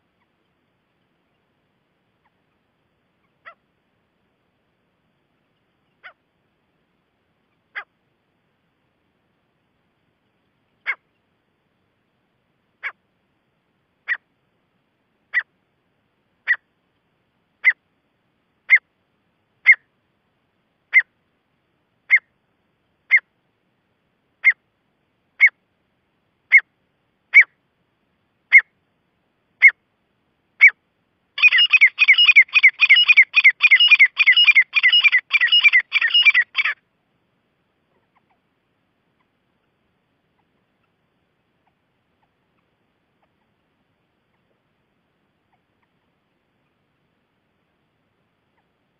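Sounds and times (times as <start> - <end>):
bird calling: 5.9 - 6.2, 7.5 - 7.9, 10.8 - 11.2, 16.4 - 16.6, 19.6 - 19.9, 22.1 - 22.3, 27.3 - 27.6, 31.4 - 36.8.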